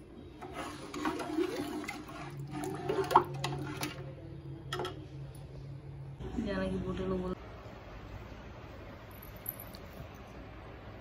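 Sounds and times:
liquid sloshing in steel pot: 0:00.4 - 0:04.0.

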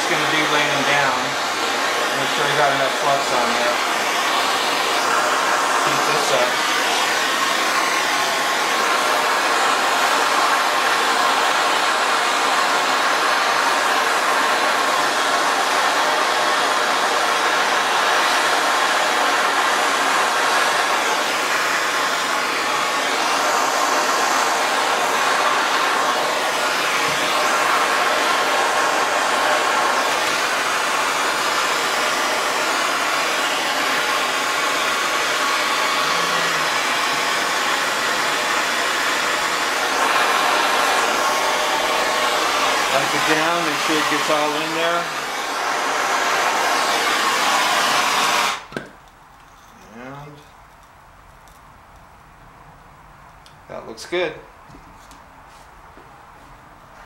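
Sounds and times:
gas torch hissing: 0:00.0 - 0:48.8.

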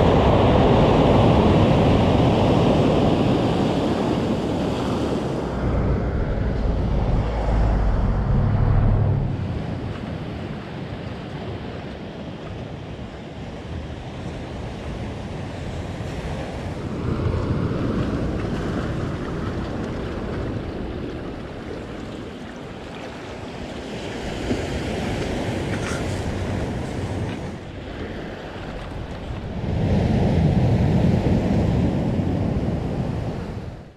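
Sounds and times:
wind on microphone: 0:04.0 - 0:10.6.

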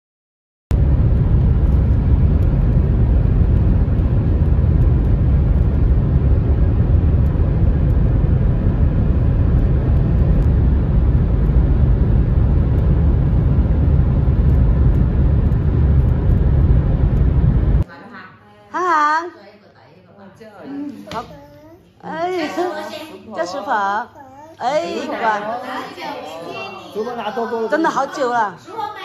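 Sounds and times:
car road and engine rumble: 0:00.8 - 0:17.8.

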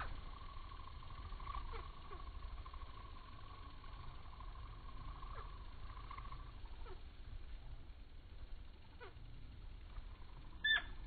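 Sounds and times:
steady hum: 0:00.0 - 0:11.0
slowed falling chirps: 0:09.9 - 0:11.0.

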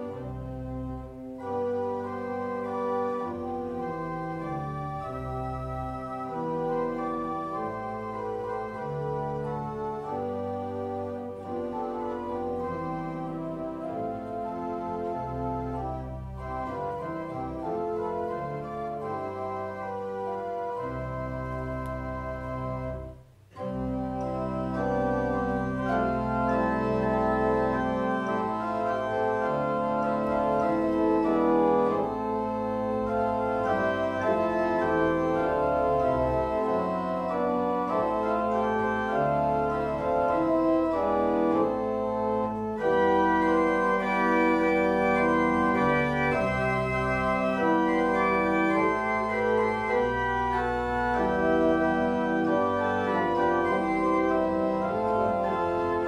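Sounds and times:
church organ chords: 0:00.0 - 0:56.0.

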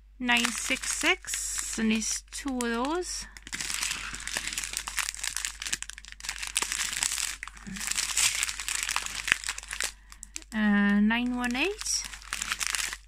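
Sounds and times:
plastic bags crinkling: 0:00.2 - 0:13.0.

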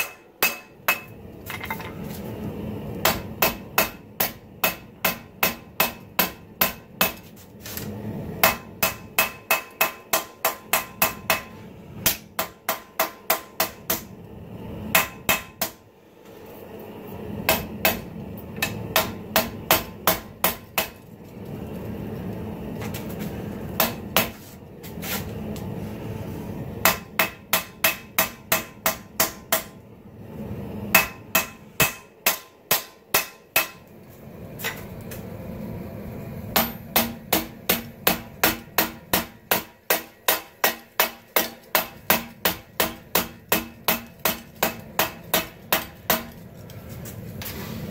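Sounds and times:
hammer striking steel on anvil: 0:00.0 - 0:02.0, 0:03.0 - 0:07.2, 0:08.4 - 0:14.1, 0:14.9 - 0:15.8, 0:17.5 - 0:21.0, 0:23.8 - 0:24.3, 0:26.8 - 0:29.8, 0:30.9 - 0:33.9, 0:36.5 - 0:46.4.

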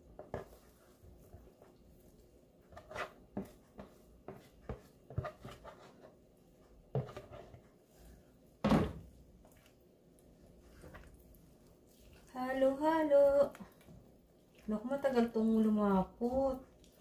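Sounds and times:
utensil scraping a cooking pot: 0:02.6 - 0:06.2.

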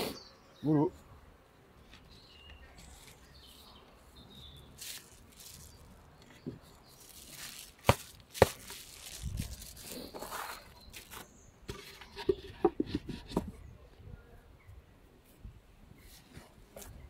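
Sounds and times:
plastic sheet rustling: 0:04.7 - 0:11.8.

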